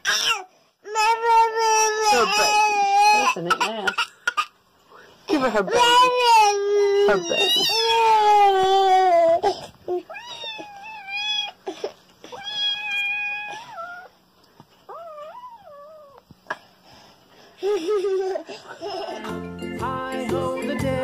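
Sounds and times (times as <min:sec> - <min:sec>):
baby whimpering: 0:00.0 - 0:03.9, 0:05.6 - 0:14.1, 0:14.9 - 0:16.2, 0:17.6 - 0:19.4
kitten meowing: 0:12.3 - 0:14.1.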